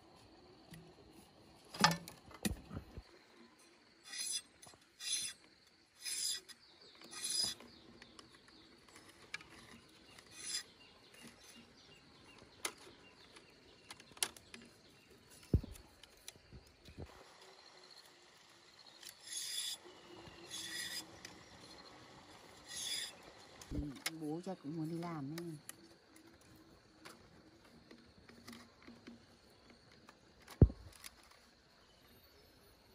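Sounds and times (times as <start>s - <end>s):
bamboo clicks and knocks: 0.6s - 3.1s, 12.3s - 17.1s, 22.7s - 31.6s
bamboo strips rasping: 4.0s - 17.0s, 18.9s - 31.4s.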